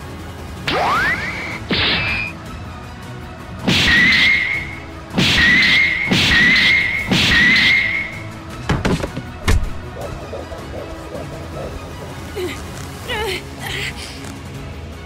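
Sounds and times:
background music: 0.0 - 15.0
rising whistle: 5.4 - 8.3
high whistling swish: 9.8 - 12.9.

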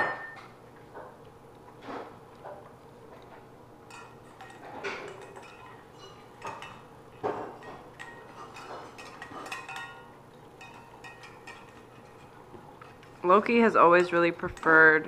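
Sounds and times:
clinks and knocks on metal bowls: 3.9 - 15.0.

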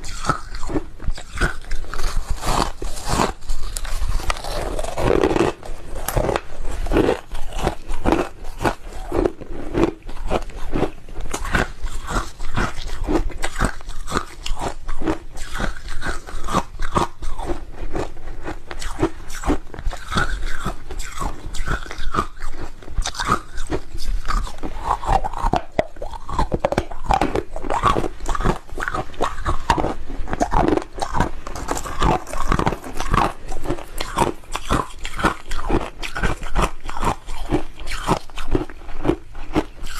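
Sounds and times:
ice being chewed: 0.0 - 39.9.

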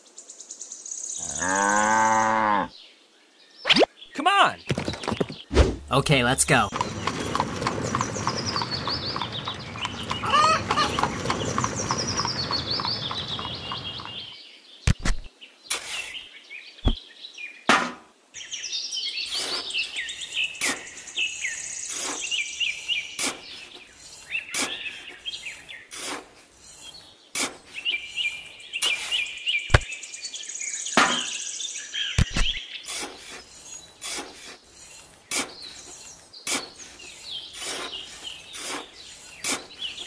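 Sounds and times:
small birds chirping: 2.5 - 17.7, 18.4 - 40.0
sharp taps and clicks: 14.9 - 15.3, 32.2 - 32.6.

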